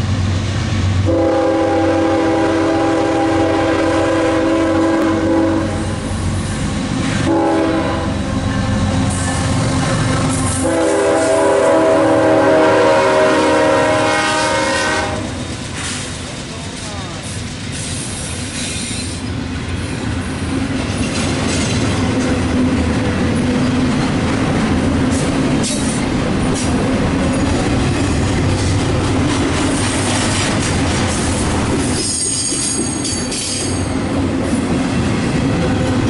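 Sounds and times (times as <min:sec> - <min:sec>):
steel wheels rumbling on rail: 0:00.0 - 0:36.0
high-pitched wheel squeal: 0:32.0 - 0:33.9.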